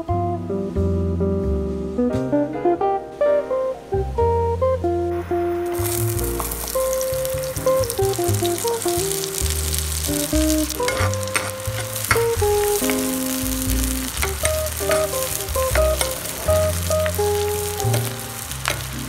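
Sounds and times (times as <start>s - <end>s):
background music: 0.0s - 19.0s
onions sizzling in oil: 5.6s - 19.0s.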